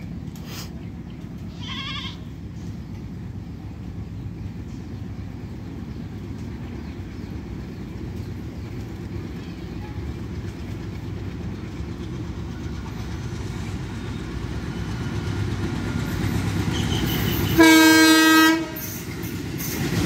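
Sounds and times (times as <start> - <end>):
diesel locomotive rumble: 0.0 - 20.0
train horn blast: 16.7 - 19.0.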